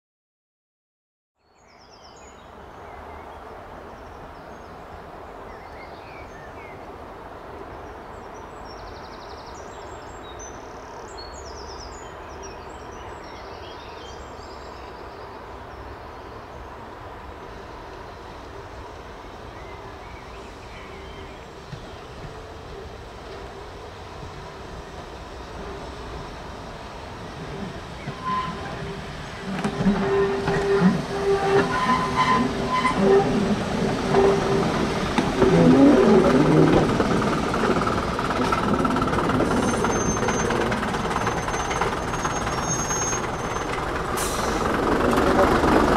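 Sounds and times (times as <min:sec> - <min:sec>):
songbirds chirping: 0:01.4 - 0:35.5
diesel train engines droning: 0:15.3 - 0:45.9.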